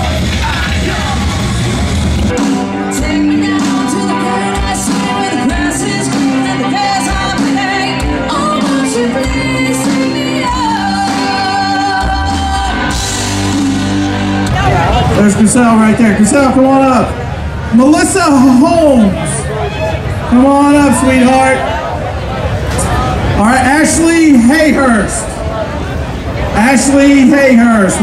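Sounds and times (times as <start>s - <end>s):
live rock band playing: 0.0s - 21.3s
woman singing: 2.8s - 13.9s.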